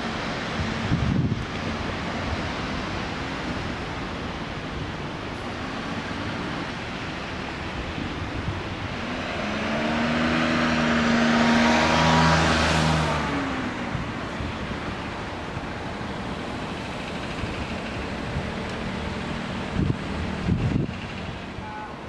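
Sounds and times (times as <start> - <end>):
vehicle passing by: 8.7 - 21.6.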